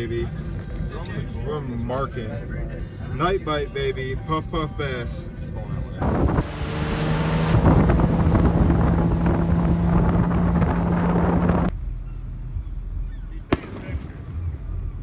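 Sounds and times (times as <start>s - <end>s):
boat engine running: 6.0s - 11.7s
wind noise on microphone: 6.0s - 11.7s
firework bang: 13.5s - 14.2s.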